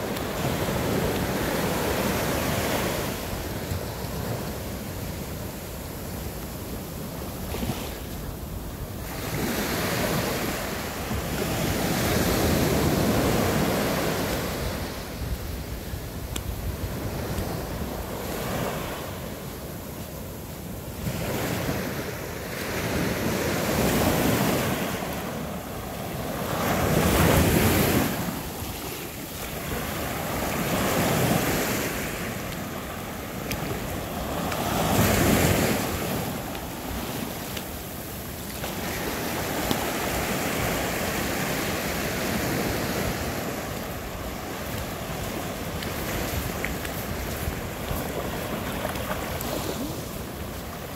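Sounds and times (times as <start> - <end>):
ocean waves washing ashore: 0.0 - 50.9
wind on microphone: 0.0 - 50.9.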